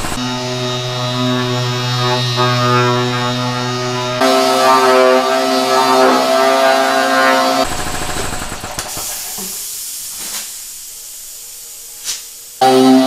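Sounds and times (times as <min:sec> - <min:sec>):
pneumatic sander whine: 0:00.0 - 0:08.0, 0:12.6 - 0:13.0.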